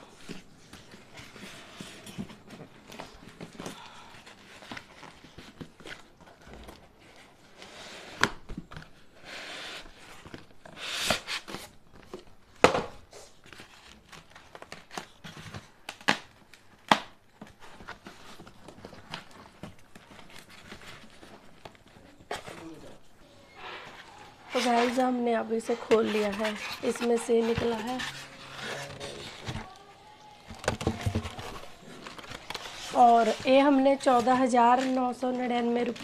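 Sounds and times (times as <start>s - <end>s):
cardboard and foam scraping: 17.6s - 29.9s, 30.5s - 36.0s.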